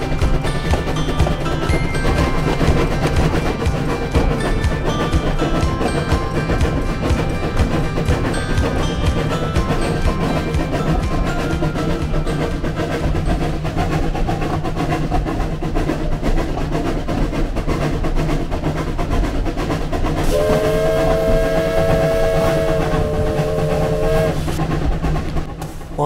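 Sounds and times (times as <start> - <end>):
steam locomotive running: 0.0 - 26.0
steam whistle chord: 20.2 - 24.6.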